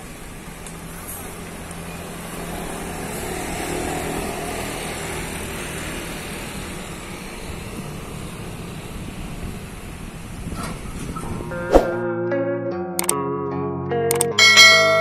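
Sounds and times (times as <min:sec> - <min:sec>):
truck diesel engine and tyres: 0:00.0 - 0:11.6
motor scooter passing: 0:00.0 - 0:12.0
car passing: 0:00.0 - 0:12.1.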